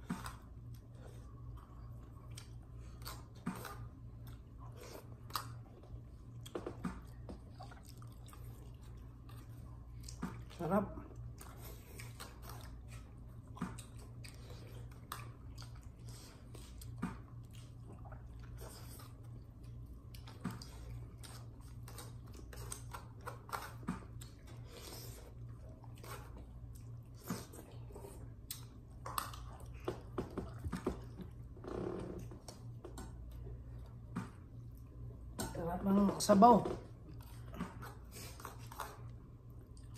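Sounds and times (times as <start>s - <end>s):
person chewing food: 0.0s - 35.4s, 36.8s - 39.9s
steady low hum: 0.0s - 39.9s
small eating clicks and taps: 5.3s - 7.5s, 28.4s - 31.4s.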